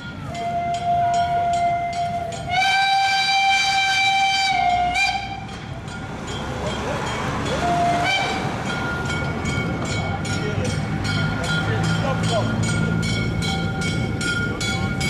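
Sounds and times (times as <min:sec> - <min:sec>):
steam locomotive whistle: 0:00.0 - 0:05.6, 0:07.5 - 0:08.7
train rumbling: 0:00.0 - 0:15.0.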